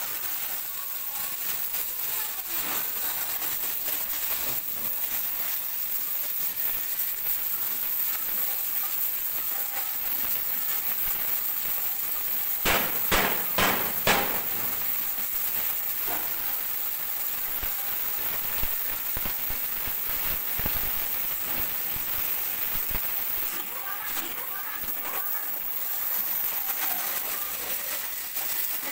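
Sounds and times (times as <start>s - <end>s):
cutting torch hissing: 0.0s - 28.9s
sparks crackling: 0.0s - 28.9s
sharp pops: 12.6s - 15.2s.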